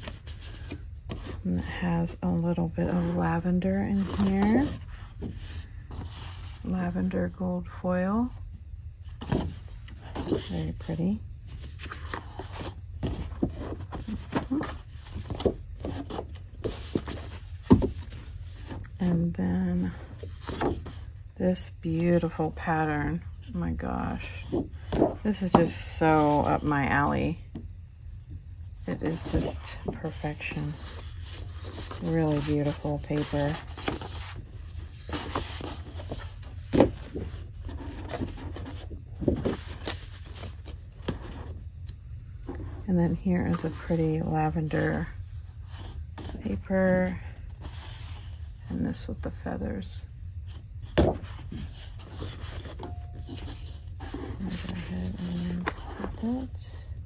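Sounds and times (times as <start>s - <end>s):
low steady hum: 0.0s - 57.0s
paper sheets rustling: 29.0s - 40.7s.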